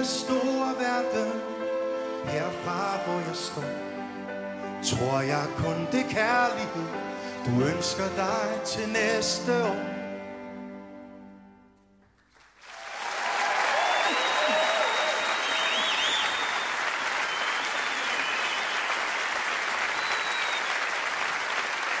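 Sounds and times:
audience applause: 12.3s - 22.0s
voices cheering: 12.8s - 21.1s
whistles from crowd: 13.1s - 19.2s, 19.8s - 21.1s.

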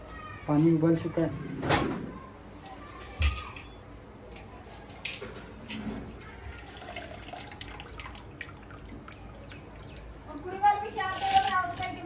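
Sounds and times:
water splashing and dripping: 6.6s - 11.0s.

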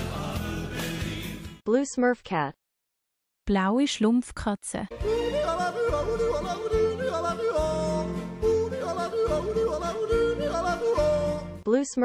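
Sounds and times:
bass accompaniment: 0.0s - 1.6s, 4.9s - 11.6s
person yodeling: 5.0s - 11.6s.

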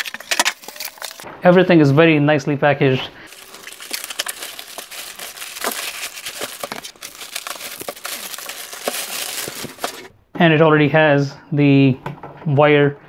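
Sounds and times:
plastic wrap crinkling: 0.0s - 1.2s, 3.3s - 10.1s.

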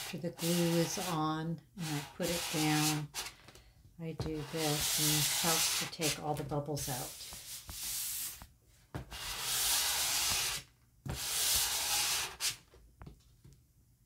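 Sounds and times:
steel ruler scraping across paper: 0.0s - 3.3s, 4.2s - 6.4s, 9.1s - 12.6s.

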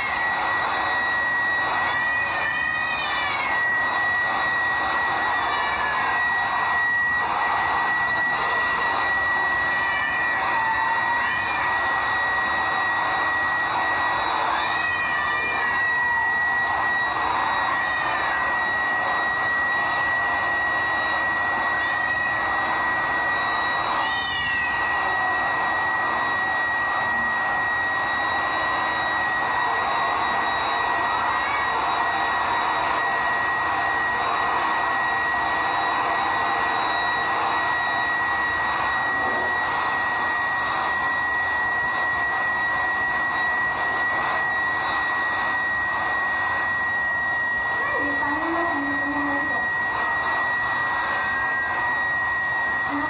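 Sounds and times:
cat meowing: 0.0s - 40.0s
hair dryer whining: 0.0s - 53.0s.

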